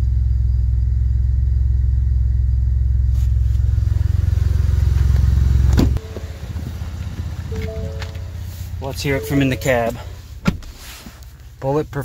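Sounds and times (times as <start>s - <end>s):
truck engine idling: 3.6s - 10.4s.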